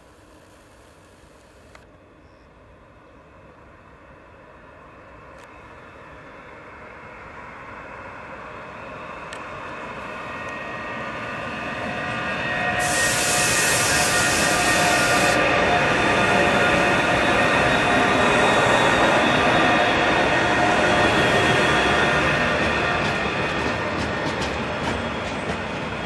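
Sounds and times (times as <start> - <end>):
freight train rumbling: 2.0 - 26.0
locomotive whining tones: 9.0 - 25.2
loud air hiss: 12.7 - 15.6.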